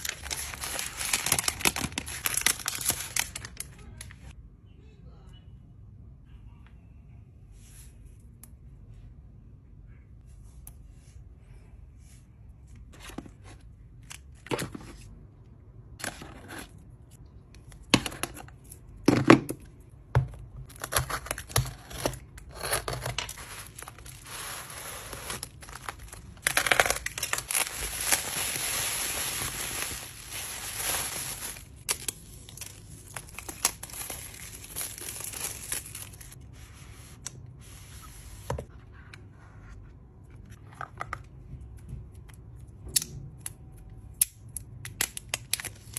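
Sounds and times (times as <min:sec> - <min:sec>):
cardboard and paper rustling: 0:00.0 - 0:04.3, 0:12.9 - 0:15.1, 0:20.7 - 0:39.8
bubble wrap crinkling and tearing: 0:00.0 - 0:04.4, 0:20.6 - 0:36.4, 0:45.0 - 0:45.9.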